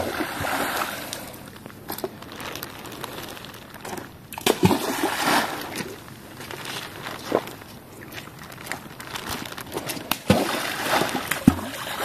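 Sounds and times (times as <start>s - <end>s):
sharp wet slaps: 9.8s - 12.0s.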